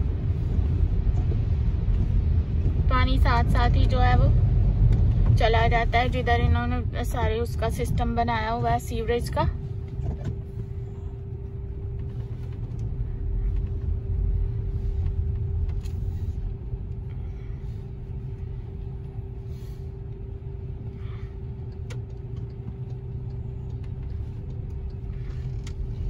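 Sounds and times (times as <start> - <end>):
cars passing on wet street: 0.0 - 9.3
low rumble with hum: 0.0 - 26.0.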